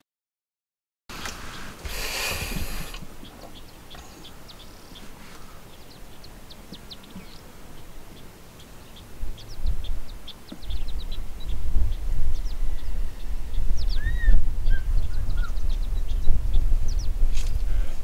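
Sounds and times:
loud hiss: 1.1s - 3.2s
small birds chirping: 1.1s - 18.0s.

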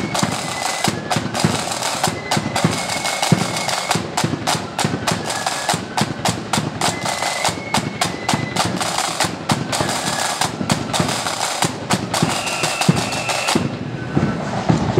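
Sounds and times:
flutes playing: 0.0s - 14.9s
rolling side-drum beats: 0.0s - 14.9s.

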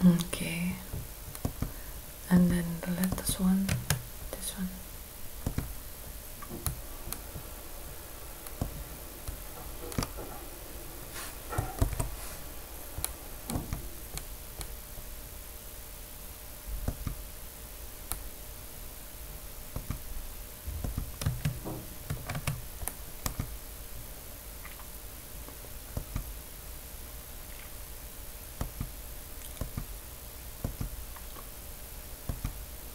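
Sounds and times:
faint electrical hum: 0.0s - 32.9s
computer mouse clicks: 3.0s - 4.0s, 13.0s - 14.8s, 19.7s - 20.0s, 20.8s - 23.5s, 28.6s - 29.9s, 32.3s - 32.6s.

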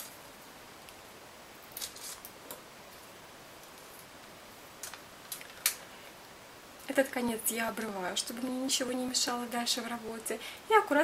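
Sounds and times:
tape crackling: 0.0s - 6.2s
faint steady hiss: 0.0s - 11.0s.

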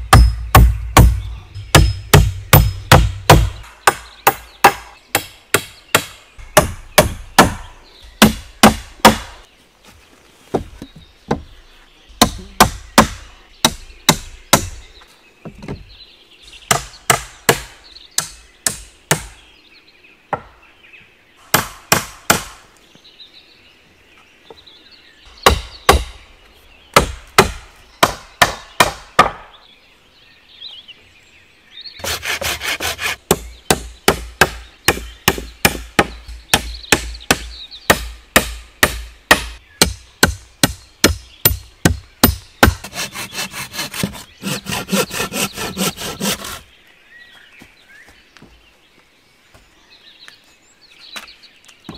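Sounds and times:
axe striking wooden poles: 0.0s - 9.5s, 12.2s - 14.8s, 16.7s - 19.4s, 21.5s - 22.6s, 25.4s - 26.1s, 26.9s - 29.5s, 32.0s - 46.6s.

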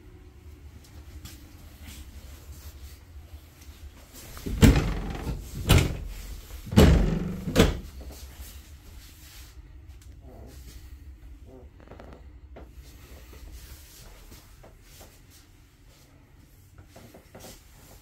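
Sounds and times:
cabinet doors clacking open: 4.4s - 7.9s.

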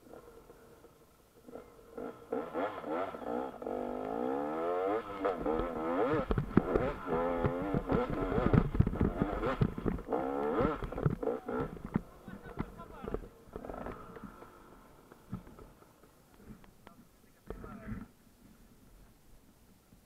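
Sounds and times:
dirt bike engine revving: 0.0s - 16.6s
bike knocks and thumps: 5.4s - 14.5s.

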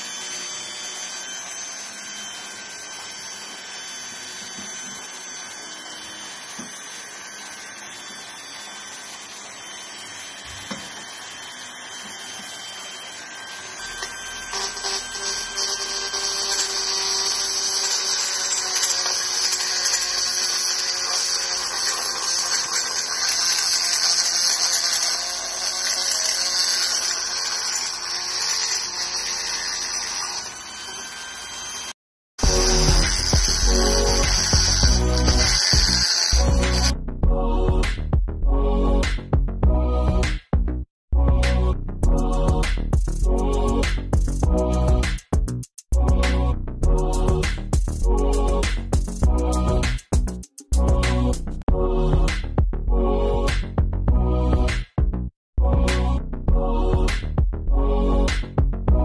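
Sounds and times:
rotary tool grinding metal: 0.0s - 37.0s
rotary tool whining: 0.0s - 37.0s.

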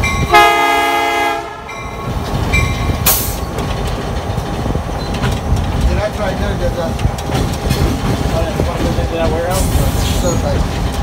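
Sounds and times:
locomotive bell ringing: 0.0s - 3.5s
engine and wheels rumbling on rails: 0.0s - 11.0s
locomotive horn blast: 0.2s - 1.9s.

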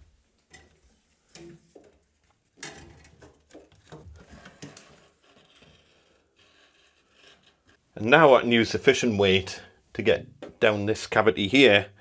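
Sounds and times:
pull cord scraping in wall: 2.6s - 7.8s.

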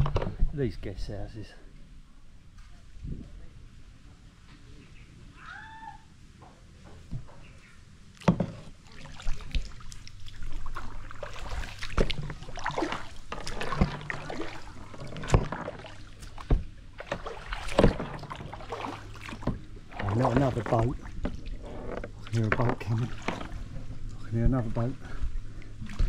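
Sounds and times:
paddle splashing in water: 8.2s - 24.1s
paddle knocking on plastic hull: 10.7s - 23.8s.

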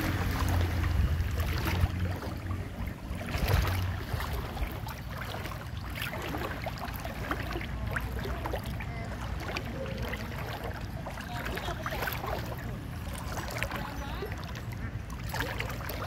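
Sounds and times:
low rumble: 0.0s - 9.8s
water sloshing and splashing: 0.0s - 16.0s.

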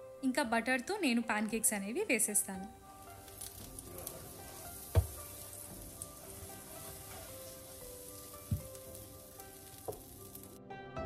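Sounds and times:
pancake batter sizzling in a pan: 2.8s - 10.6s
dull knocks: 4.9s - 5.4s, 8.4s - 8.8s.

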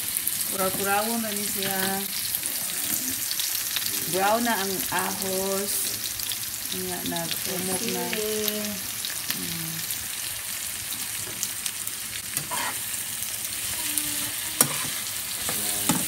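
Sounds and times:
vegetables sizzling in a frying pan: 0.0s - 16.0s
spatula scraping a pan: 12.4s - 12.9s, 14.2s - 16.0s.

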